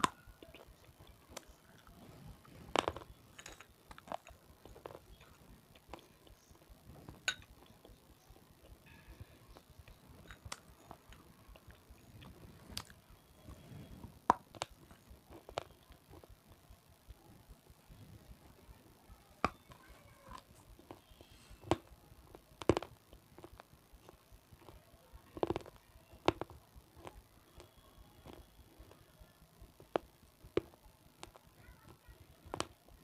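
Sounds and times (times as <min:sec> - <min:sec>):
crunching bites of hard food: 0:02.6 - 0:08.0, 0:20.3 - 0:29.0.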